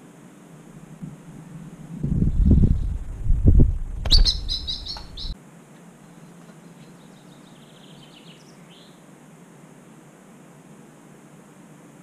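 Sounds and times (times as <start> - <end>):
wind buffeting microphone: 1.0 - 5.4
bird chirping: 3.9 - 5.4, 6.2 - 9.0.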